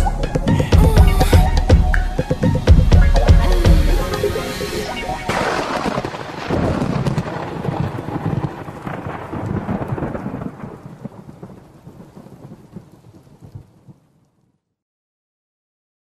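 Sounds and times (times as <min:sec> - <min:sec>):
thunder rumbling: 0:00.0 - 0:14.1
rain: 0:03.4 - 0:14.8.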